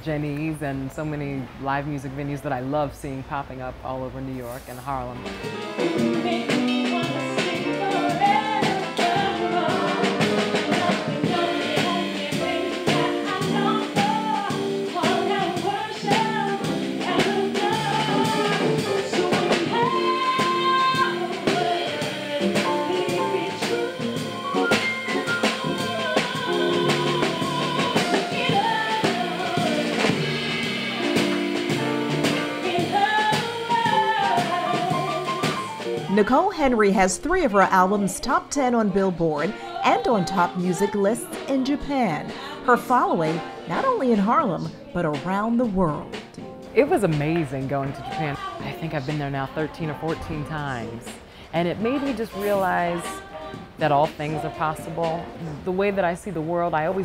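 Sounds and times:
woman singing jazz: 0:00.0 - 0:57.0
drum kit: 0:04.4 - 0:57.0
guitar: 0:04.8 - 0:57.0
upright double bass: 0:53.8 - 0:55.8.

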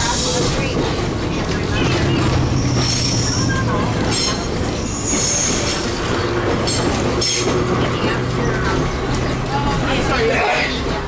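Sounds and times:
streetcar low hum: 0:00.0 - 0:11.0
wheels rumbling on rails: 0:00.0 - 0:11.0
high-pitched wheel squeals: 0:02.5 - 0:06.0.

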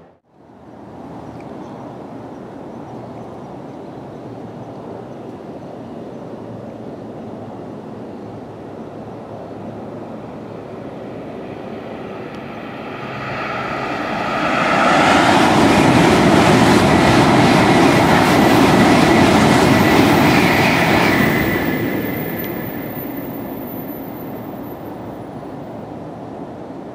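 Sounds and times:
bullet train rushing past: 0:09.0 - 0:26.9.

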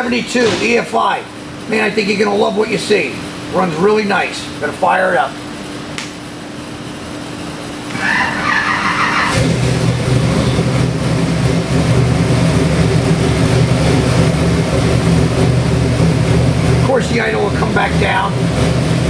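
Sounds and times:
engine fast idle: 0:07.9 - 0:19.0.

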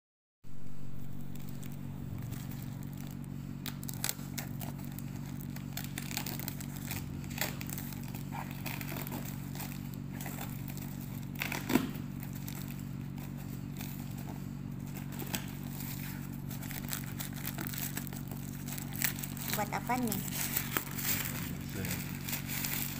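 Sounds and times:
steady low hum: 0:00.5 - 0:22.9
plastic bag crinkling and tearing: 0:00.8 - 0:22.9.

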